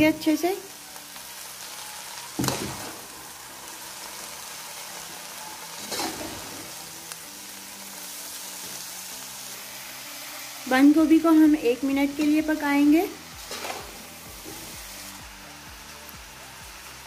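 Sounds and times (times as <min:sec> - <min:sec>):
vegetables sizzling in a pot: 0:00.0 - 0:17.0
metal spatula stirring: 0:05.8 - 0:06.6, 0:13.4 - 0:14.7.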